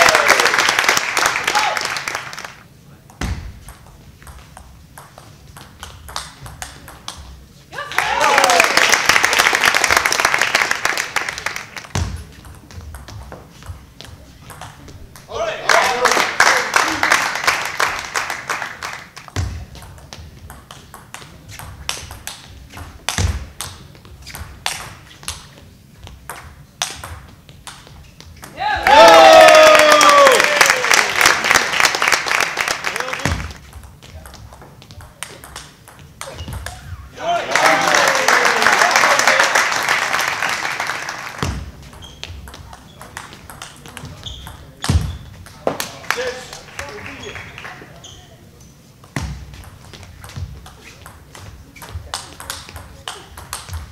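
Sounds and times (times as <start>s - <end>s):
applause: 0.0s - 2.6s, 7.9s - 11.9s, 15.7s - 19.3s, 28.8s - 33.6s, 37.4s - 41.4s, 46.0s - 47.8s
table tennis ball hits: 3.1s - 7.3s, 11.7s - 15.3s, 19.2s - 25.5s, 26.1s - 28.6s, 33.2s - 36.9s, 41.4s - 46.0s, 49.0s - 53.9s.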